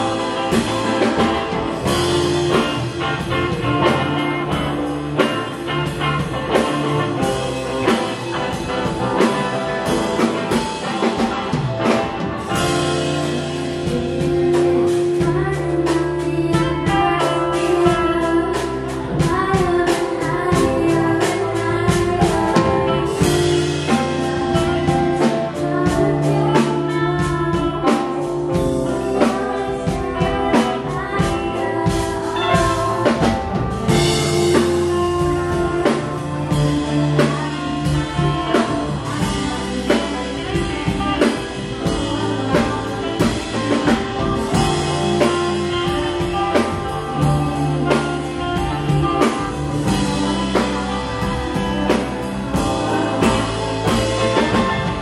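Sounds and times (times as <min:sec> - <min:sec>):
drum kit beat: 0:00.0 - 0:55.0
guitar: 0:00.0 - 0:55.0.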